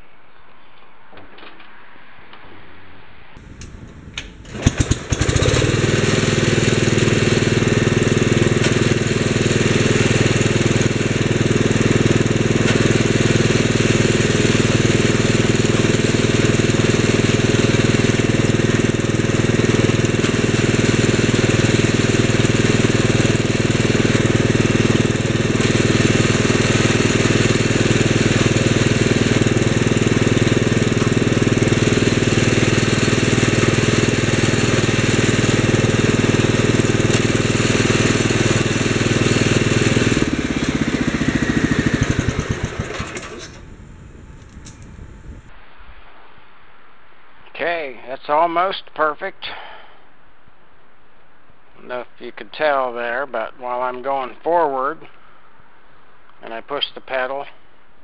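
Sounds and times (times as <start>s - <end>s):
engine starting and running: 3.4s - 45.5s.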